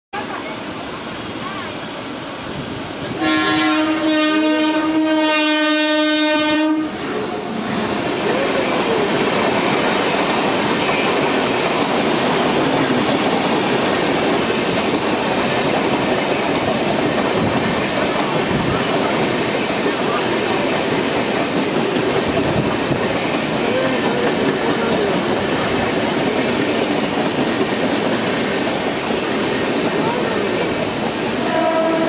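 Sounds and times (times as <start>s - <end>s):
locomotive horn blast: 3.2s - 7.5s, 31.4s - 32.0s
train wheels clattering on rail: 7.7s - 32.0s.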